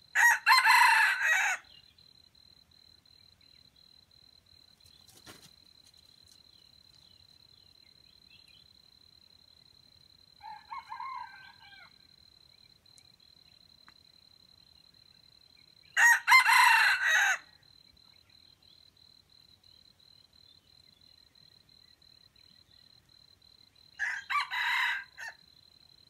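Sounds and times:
rooster crowing: 0.1s - 1.8s, 10.4s - 12.0s, 16.0s - 17.5s, 24.0s - 25.4s.

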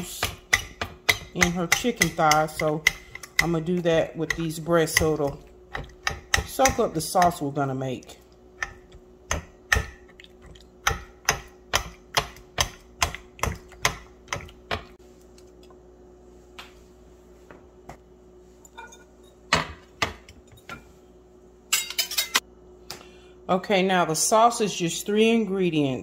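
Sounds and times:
faint steady hum: 0.0s - 26.0s
dishes knocking and clattering: 18.8s - 20.9s.

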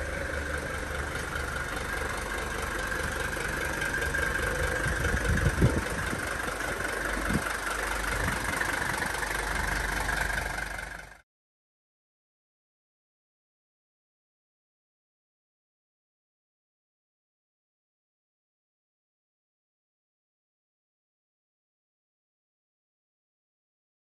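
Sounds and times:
diesel engine idling: 0.0s - 11.2s.

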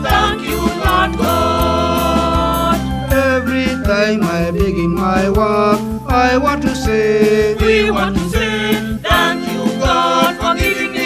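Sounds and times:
choir singing gospel song: 0.0s - 3.4s, 7.5s - 11.0s
instrumental backing with steady beat: 0.0s - 11.0s.

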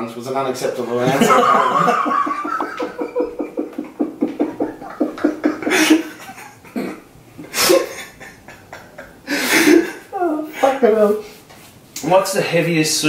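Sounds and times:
man laughing hard: 1.1s - 10.8s.

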